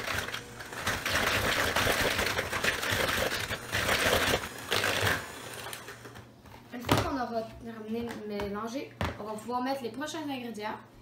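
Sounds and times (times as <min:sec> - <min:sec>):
electric hand mixer whirring: 0:00.0 - 0:06.2.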